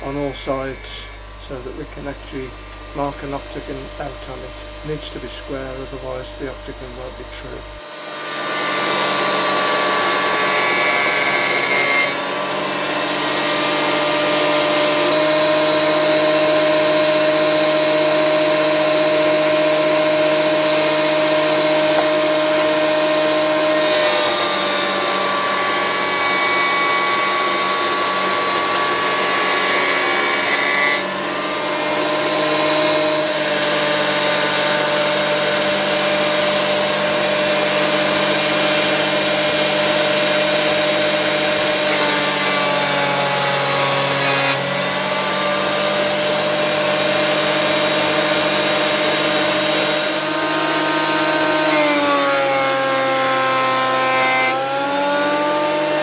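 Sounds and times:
cutter planing wood: 0.0s - 56.0s
jointer planer motor whine: 0.0s - 56.0s.

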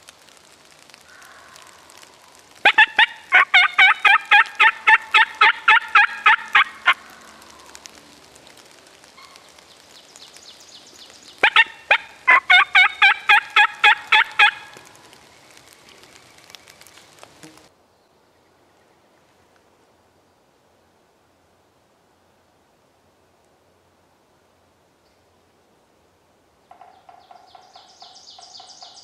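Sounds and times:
turkey yelping: 2.6s - 7.0s, 11.4s - 14.8s.

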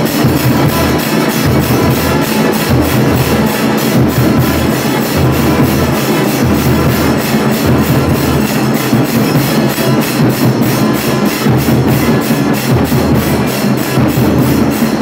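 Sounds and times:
music with fast percussive beat: 0.0s - 15.0s.

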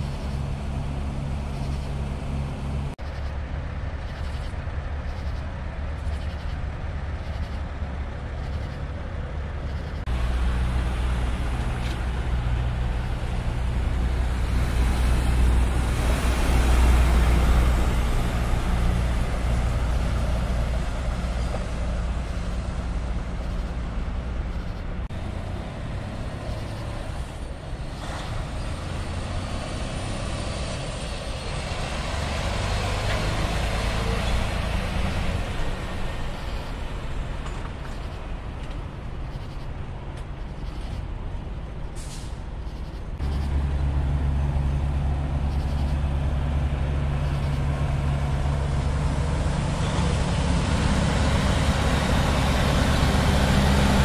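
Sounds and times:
road noise: 0.0s - 54.0s
truck diesel engines running: 0.0s - 54.0s.

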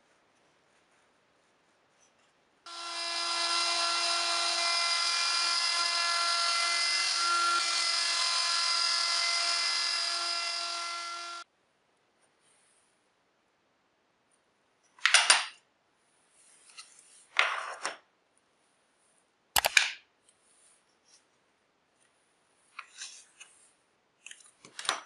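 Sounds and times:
router cutting wood whining: 2.7s - 11.4s.

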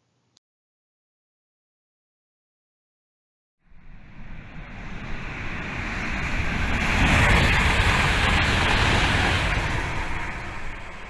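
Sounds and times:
deep rumble: 3.7s - 11.0s
rushing whoosh: 3.7s - 11.0s.

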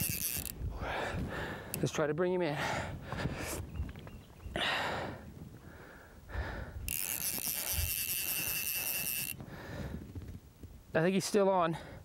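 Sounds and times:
fishing reel click drag buzzing: 0.0s - 0.6s, 6.8s - 9.4s.

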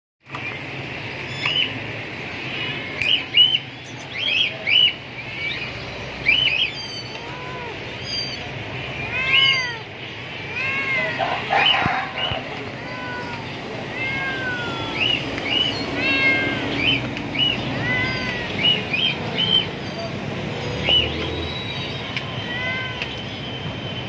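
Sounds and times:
high bird chirps: 0.3s - 1.8s, 3.0s - 7.2s, 7.9s - 8.5s, 14.8s - 24.0s
cat mewing: 6.4s - 20.1s, 22.2s - 23.2s.

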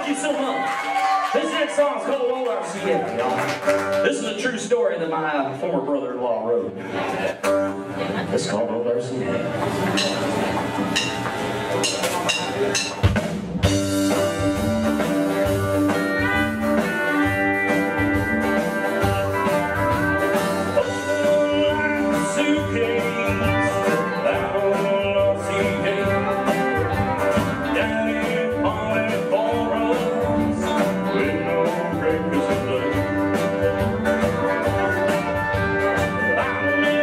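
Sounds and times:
live country band playing: 0.0s - 37.0s
male lead vocal: 20.7s - 33.9s, 36.0s - 37.0s.

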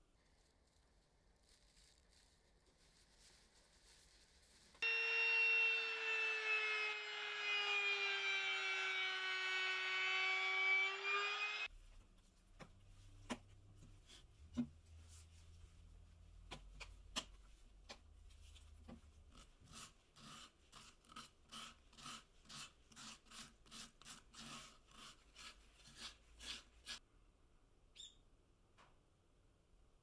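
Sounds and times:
sandpaper rubbing on wood: 19.6s - 27.0s.

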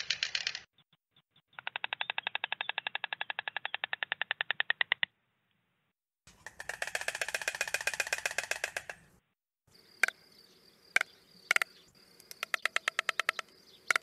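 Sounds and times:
stork bill-clattering: 6.3s - 9.1s.

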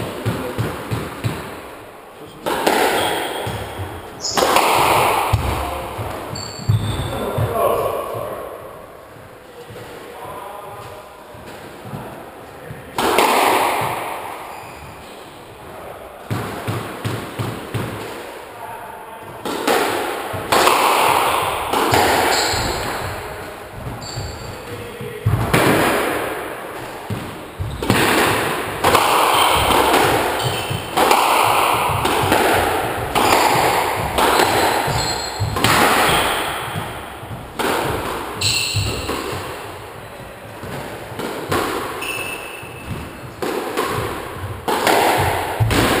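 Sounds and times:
squash ball hits: 0.0s - 1.7s, 2.4s - 8.4s, 12.7s - 15.0s, 16.2s - 18.4s, 19.2s - 46.0s
shoes squeaking on wooden floor: 2.3s - 8.3s, 14.4s - 15.7s, 21.4s - 25.6s, 26.7s - 46.0s.

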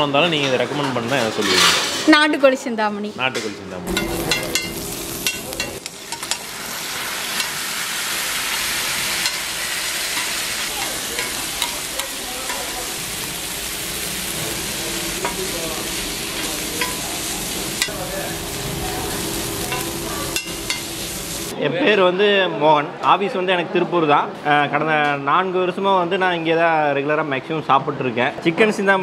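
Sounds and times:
food sizzling on a griddle: 3.9s - 21.5s
spatula tapping: 10.1s - 12.8s
metal spatula scraping: 13.7s - 18.0s.

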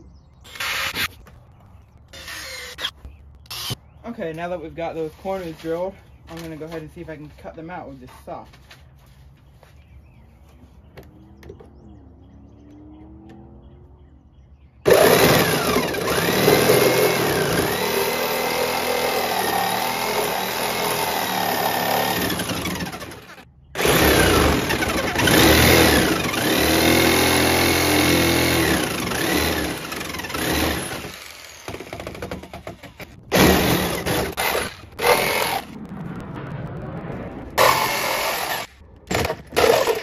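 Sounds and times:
jigsaw motor whine: 2.1s - 2.9s, 3.5s - 3.8s, 14.9s - 35.7s, 37.6s - 40.0s.

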